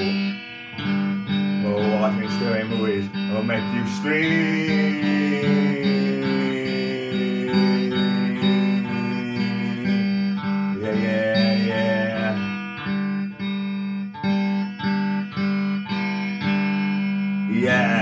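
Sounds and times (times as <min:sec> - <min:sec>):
person singing: 0:00.0 - 0:00.4, 0:01.6 - 0:13.0, 0:17.5 - 0:18.0
electric guitar strumming chords: 0:00.0 - 0:18.0.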